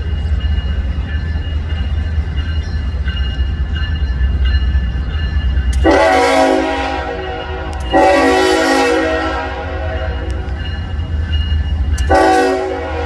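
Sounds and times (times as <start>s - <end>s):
locomotive engine rumble: 0.0s - 13.0s
locomotive air horn blast: 5.8s - 10.5s, 12.1s - 13.0s.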